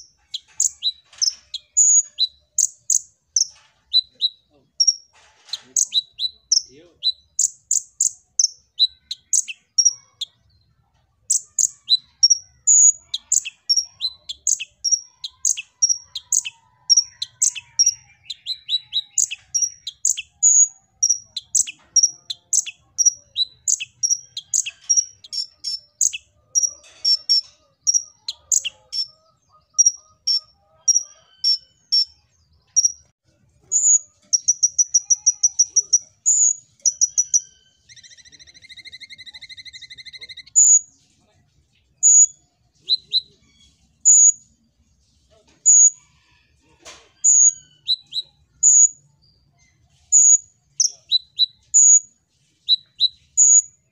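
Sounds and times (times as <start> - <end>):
bird rapid trill: 0.0 - 10.4, 11.3 - 32.2, 32.8 - 40.9
sunbird high chirps: 0.0 - 10.4, 11.3 - 41.0, 41.9 - 44.5, 47.2 - 53.9.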